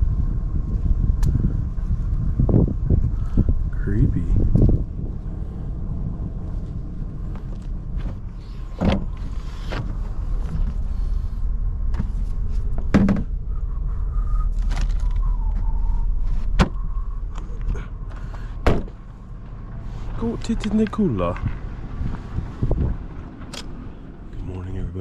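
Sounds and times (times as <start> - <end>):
steady low rumble: 0.0 - 25.0
gear knocking and clunking: 6.4 - 13.4, 16.4 - 23.8.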